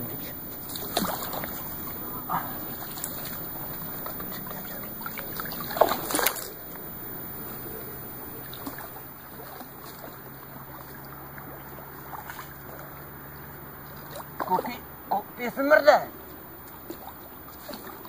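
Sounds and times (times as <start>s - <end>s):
low wash of water: 0.0s - 15.1s
water splashing sharply: 0.6s - 6.6s.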